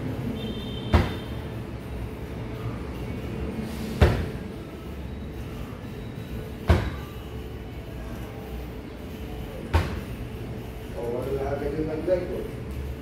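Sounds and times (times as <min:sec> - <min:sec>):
punching bag thud: 0:00.9 - 0:01.3.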